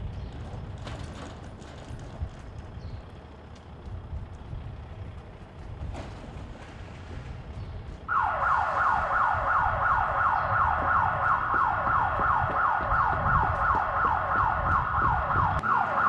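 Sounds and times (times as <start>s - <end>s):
siren in falling sweeps: 8.1s - 16.0s.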